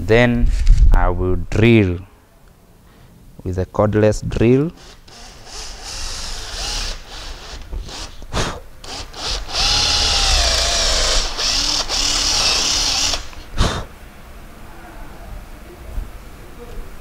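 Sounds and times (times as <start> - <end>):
cordless drill boring into wood: 4.8 - 8.2, 8.8 - 13.5.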